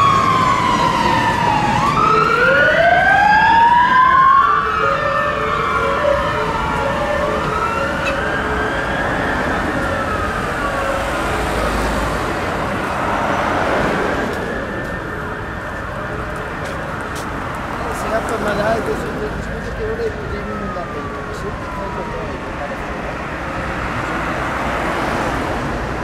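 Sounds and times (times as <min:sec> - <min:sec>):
hi-lo two-tone siren: 0:00.0 - 0:11.8, 0:19.7 - 0:23.4
fire engine siren wail: 0:00.0 - 0:26.0
traffic noise: 0:00.0 - 0:26.0.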